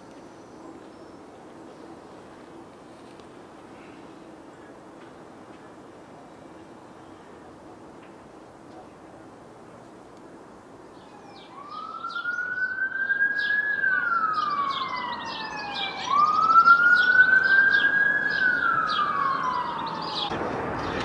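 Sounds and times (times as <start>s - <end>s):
emergency siren wailing: 11.0s - 20.5s.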